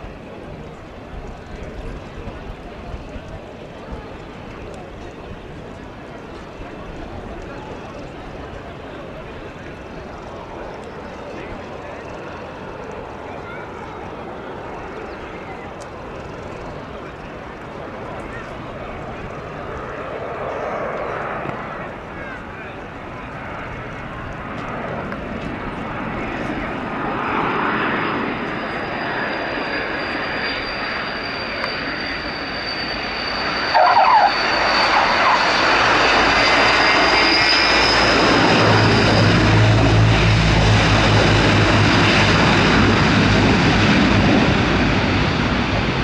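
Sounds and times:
turboprop engines whining: 0:00.0 - 0:46.0
tyre squeal: 0:28.5 - 0:39.1.

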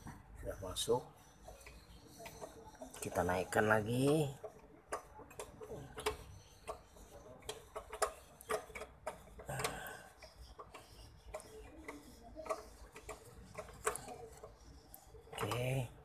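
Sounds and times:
metallic clicks and ticks: 0:03.8 - 0:16.0.

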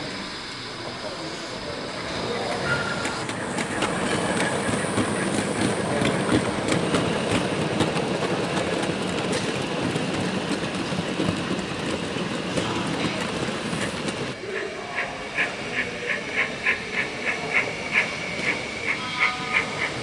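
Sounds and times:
model train wheels clattering: 0:02.4 - 0:14.4.

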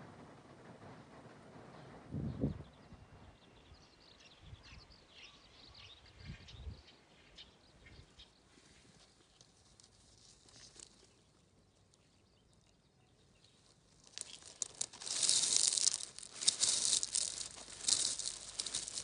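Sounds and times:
crisp rustling and crackling: 0:09.3 - 0:11.3, 0:13.6 - 0:19.0.

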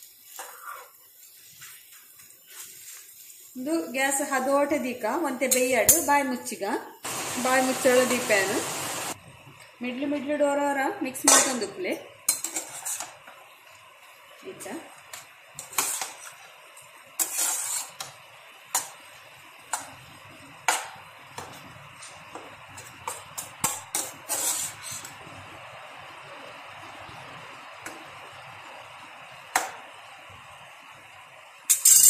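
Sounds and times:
food frying hiss: 0:00.0 - 0:32.0
metal spatula scraping a frying pan: 0:12.3 - 0:13.2, 0:15.6 - 0:16.5, 0:17.2 - 0:18.2, 0:22.8 - 0:25.2, 0:31.7 - 0:32.0.

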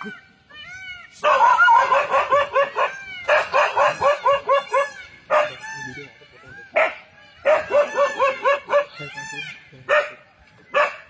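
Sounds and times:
dog barking: 0:01.2 - 0:05.6, 0:06.7 - 0:09.1, 0:09.8 - 0:11.0.

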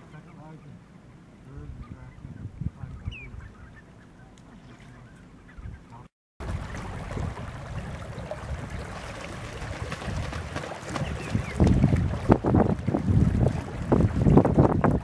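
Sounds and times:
shorebirds and gulls calling: 0:00.0 - 0:07.0, 0:10.2 - 0:12.0
wind on microphone: 0:01.5 - 0:03.8, 0:05.6 - 0:15.0.

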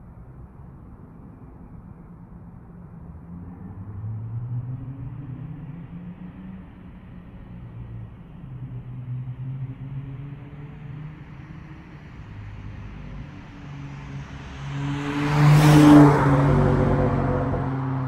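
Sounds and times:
car driving past: 0:08.7 - 0:18.0.

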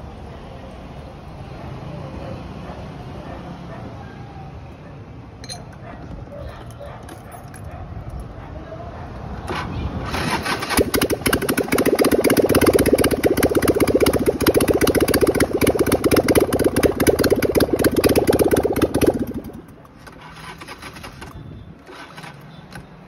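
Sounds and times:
motorcycle engine running: 0:10.1 - 0:22.4.

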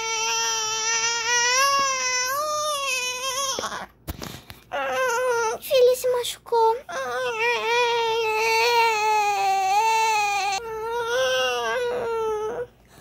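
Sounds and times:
baby crying: 0:00.0 - 0:03.9, 0:04.7 - 0:05.6, 0:06.9 - 0:12.7.

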